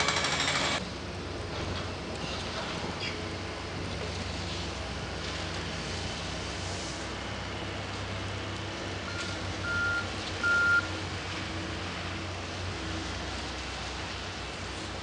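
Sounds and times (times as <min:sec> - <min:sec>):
diesel machinery rumble: 0:00.0 - 0:15.0
backup alarm beeps: 0:09.1 - 0:10.9.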